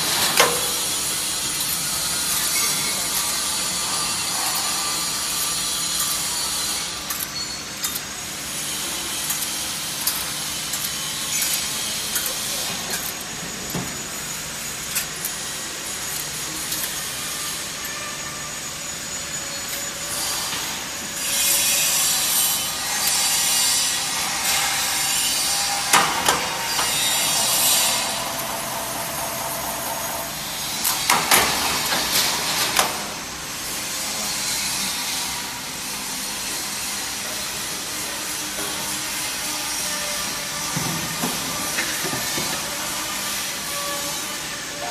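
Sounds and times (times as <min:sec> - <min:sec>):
machine hissing: 0:00.0 - 0:33.4.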